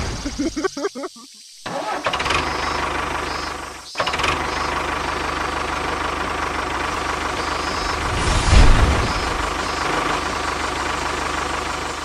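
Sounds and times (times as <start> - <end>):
tractor engine knocking: 1.8 - 8.0, 9.1 - 12.0.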